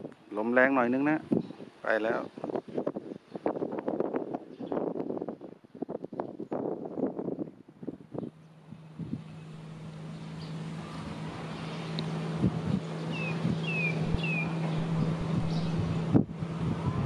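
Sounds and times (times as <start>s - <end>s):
wind on microphone: 0.0s - 17.0s
diesel train engine drone: 7.0s - 17.0s
bird chirping: 8.2s - 12.2s, 12.8s - 16.0s.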